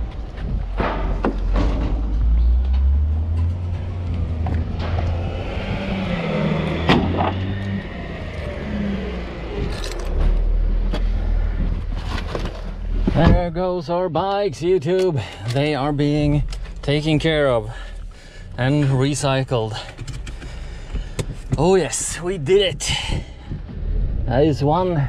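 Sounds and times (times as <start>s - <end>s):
diesel engine revving: 0.0s - 13.5s
sharp knocks: 0.7s - 2.7s.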